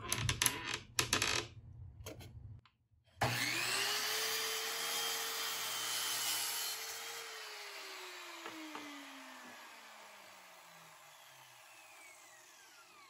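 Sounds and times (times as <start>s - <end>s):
miter saw motor whining: 3.2s - 5.7s, 6.7s - 13.0s
saw blade cutting wood: 3.2s - 13.0s.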